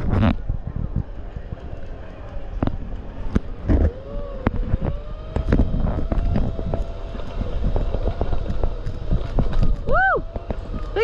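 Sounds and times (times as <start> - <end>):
wind on microphone: 0.0 - 11.0
electric motor whining: 3.5 - 11.0.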